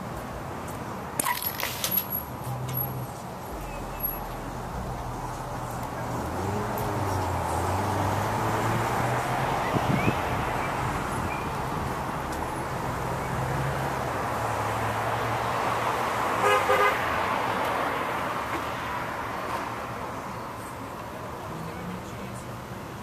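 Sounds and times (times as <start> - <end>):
traffic noise: 0.0 - 23.0
low engine hum: 2.5 - 13.6
car horn toot: 16.4 - 17.0.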